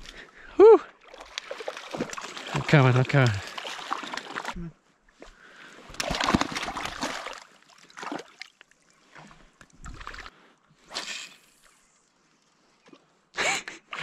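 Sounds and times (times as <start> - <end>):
water splashing and sloshing: 0.9 - 11.0.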